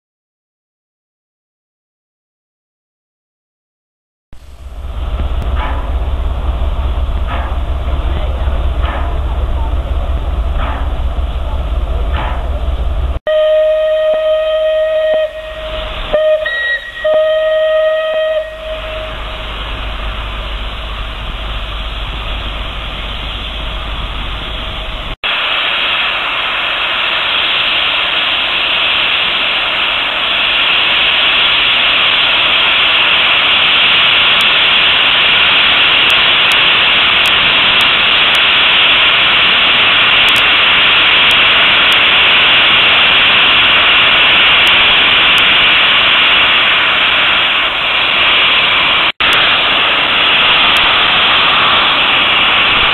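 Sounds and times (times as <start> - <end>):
steam hissing: 4.4 - 52.9
steam whistle blasts: 13.3 - 19.6.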